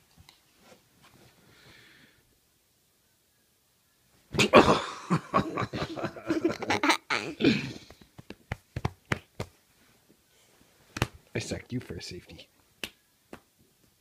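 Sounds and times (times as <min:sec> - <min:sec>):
girl laughing loudly: 0:04.4 - 0:07.8
sharp taps and clicks: 0:07.9 - 0:09.6.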